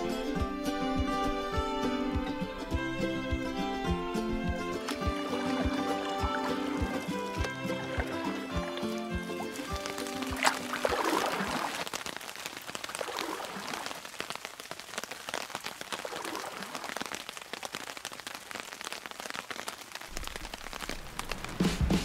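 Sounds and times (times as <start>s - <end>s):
heavy rain on water: 4.4s - 22.0s.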